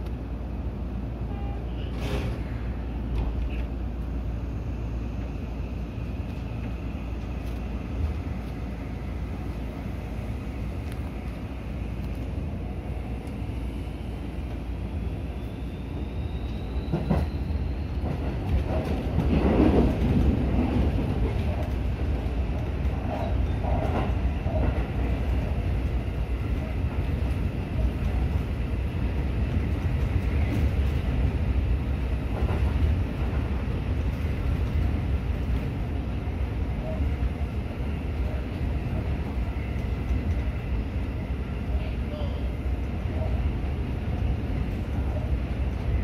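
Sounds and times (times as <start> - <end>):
electric train rumble: 0.0 - 46.0
wheels clacking on rails: 16.4 - 37.6.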